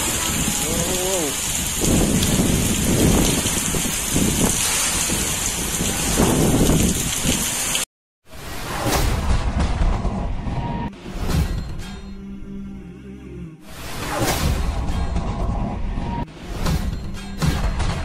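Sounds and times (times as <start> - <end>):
strong wind gusts rumbling: 0.0 - 7.8
heavy rain pouring on street: 0.0 - 7.9.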